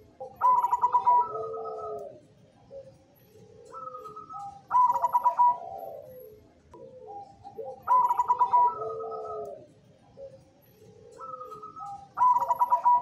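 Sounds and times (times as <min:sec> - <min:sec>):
dove cooing: 0:00.0 - 0:13.0.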